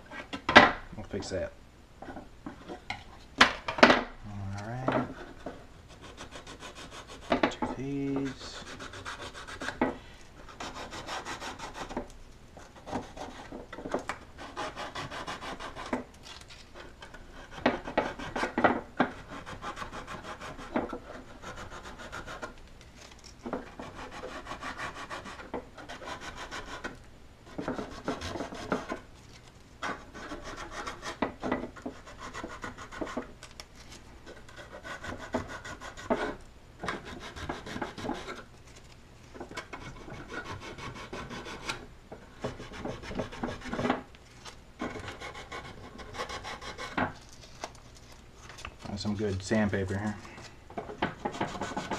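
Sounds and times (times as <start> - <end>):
sanding block rasping on wood: 5.9 - 9.8, 10.5 - 12.0, 14.4 - 15.9, 17.3 - 22.6, 23.7 - 26.9, 27.6 - 29.0, 29.8 - 33.3, 34.6 - 38.4, 39.7 - 41.7, 42.4 - 43.8, 45.0 - 47.0, 51.2 - 51.9.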